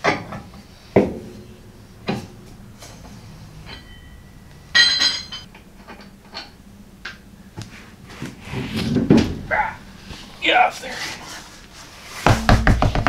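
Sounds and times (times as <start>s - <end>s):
ringing metal clink: 1.0s - 6.6s.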